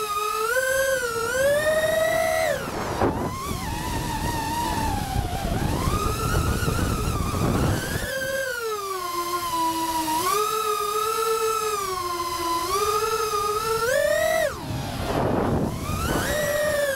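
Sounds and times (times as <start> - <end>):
quadcopter motors whining: 0.0 - 16.9
air rushing over propellers: 0.9 - 8.3, 11.7 - 16.9.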